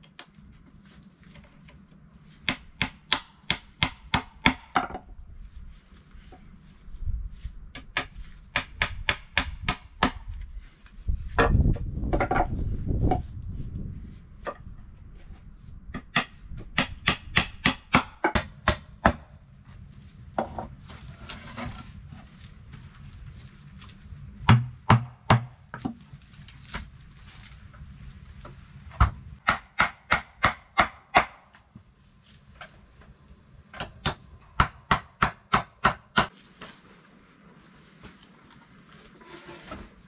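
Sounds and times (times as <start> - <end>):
boards scraping: 20.4 - 22.3, 39.0 - 40.0.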